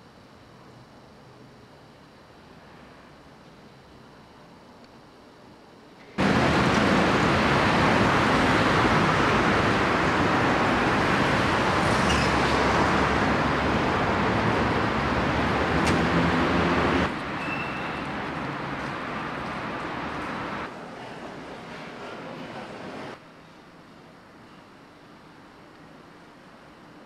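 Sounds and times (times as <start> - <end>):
passing cars: 6.2 - 20.7.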